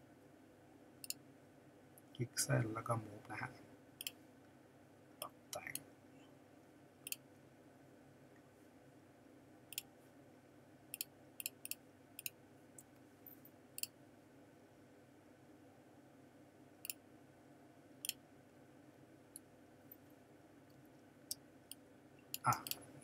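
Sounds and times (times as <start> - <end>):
faint background hum: 0.0 - 23.0
computer mouse clicks: 10.9 - 12.9, 21.3 - 22.8.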